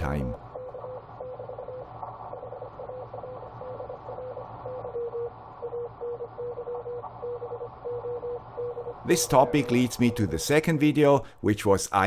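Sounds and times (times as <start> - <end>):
low steady hum: 0.0 - 11.5
morse code tone: 2.8 - 10.9.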